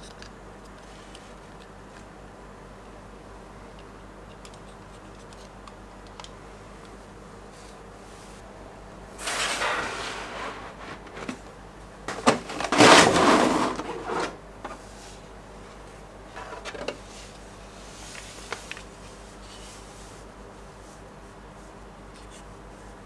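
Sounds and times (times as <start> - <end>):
packaging rustling and scraping: 9.2 - 11.4, 12.1 - 14.4.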